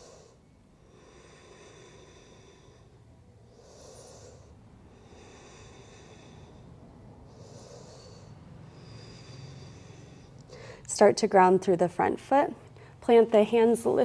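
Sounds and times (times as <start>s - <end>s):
person breathing slowly: 0.0s - 10.9s.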